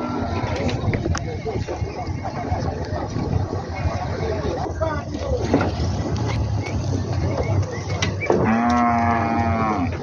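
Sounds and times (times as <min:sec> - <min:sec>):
cow mooing: 0:08.4 - 0:10.0.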